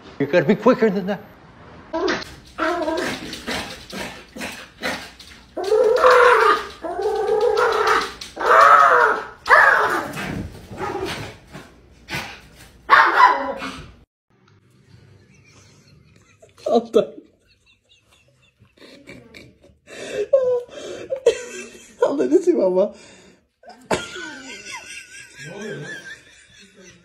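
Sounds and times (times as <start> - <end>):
small dog barking and whining: 5.6 - 10.2, 12.9 - 13.8.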